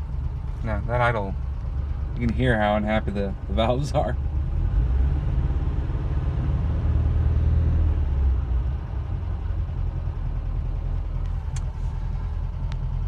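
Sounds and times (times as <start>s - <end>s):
car engine idling unevenly: 0.0s - 4.8s, 8.0s - 13.0s.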